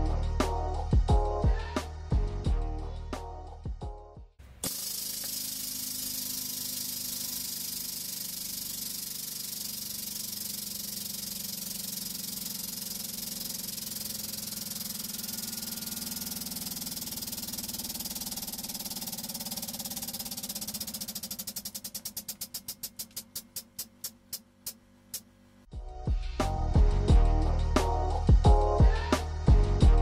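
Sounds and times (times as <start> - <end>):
hydraulic press hissing: 4.6 - 23.9.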